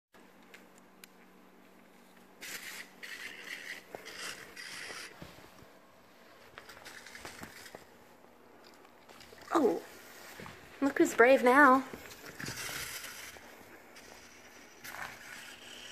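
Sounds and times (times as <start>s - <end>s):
toy buzzing and rattling: 2.4s - 5.3s, 6.6s - 7.9s, 12.2s - 15.9s.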